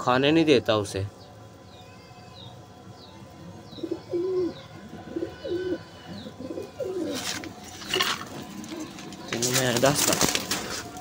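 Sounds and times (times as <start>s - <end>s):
pigeons cooing: 3.4s - 11.0s.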